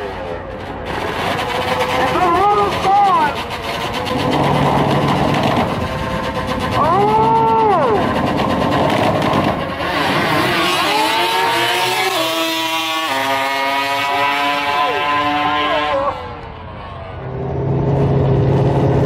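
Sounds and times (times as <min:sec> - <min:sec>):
rear tyre spinning: 0:00.0 - 0:17.4
motorcycle engine revving: 0:00.0 - 0:19.0.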